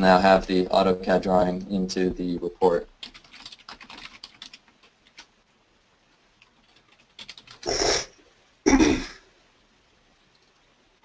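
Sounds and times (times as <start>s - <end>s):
computer keyboard typing: 2.8s - 5.3s, 6.4s - 7.8s.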